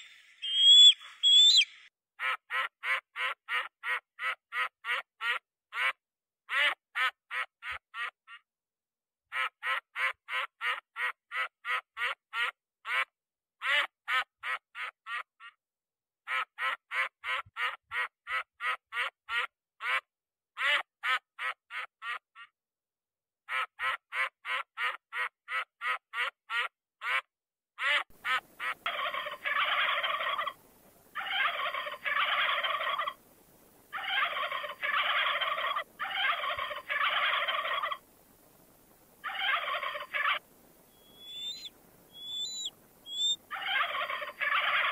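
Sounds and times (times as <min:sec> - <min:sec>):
guineafowl cackling: 0:00.0 - 0:08.1, 0:27.8 - 0:30.6, 0:31.2 - 0:33.2, 0:33.9 - 0:38.0, 0:39.2 - 0:44.9
duck quacking: 0:00.0 - 0:08.4, 0:09.3 - 0:15.6, 0:23.5 - 0:30.5, 0:41.0 - 0:44.9.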